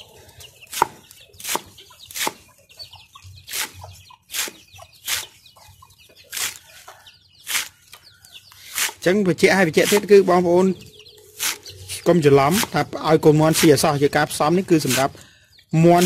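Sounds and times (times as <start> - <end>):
chickens clucking and peeping: 0.0 - 16.0
knife chopping on wooden board: 0.7 - 2.4.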